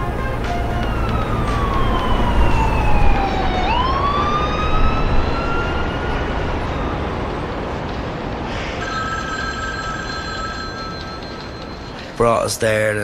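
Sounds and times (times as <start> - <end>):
police siren wailing: 0.0 - 10.0
street traffic: 0.0 - 13.0.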